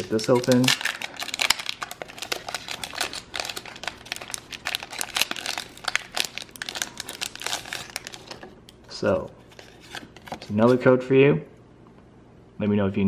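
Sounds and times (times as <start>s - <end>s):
foil wrapper crinkling: 0.0s - 8.8s.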